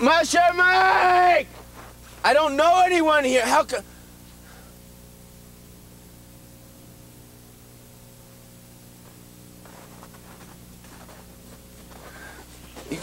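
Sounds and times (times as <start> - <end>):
low electrical hum: 0.0 - 13.0
tape hiss: 0.0 - 13.0
faint rustle: 9.0 - 13.0.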